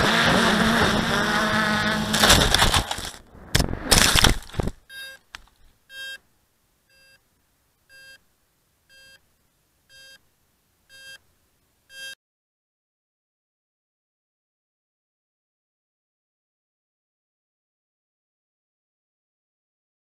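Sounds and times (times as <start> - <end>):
short electronic beeps: 4.9 - 5.2, 5.9 - 6.2, 6.9 - 7.2, 7.9 - 8.2, 8.9 - 9.2, 9.9 - 10.2, 10.9 - 11.2, 11.9 - 12.2.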